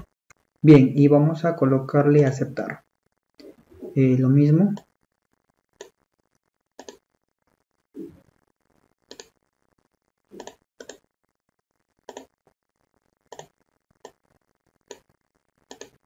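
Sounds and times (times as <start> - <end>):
computer mouse clicks: 6.8 - 7.0, 9.1 - 9.4, 10.4 - 11.0, 12.1 - 12.3, 13.3 - 14.2, 15.7 - 16.0.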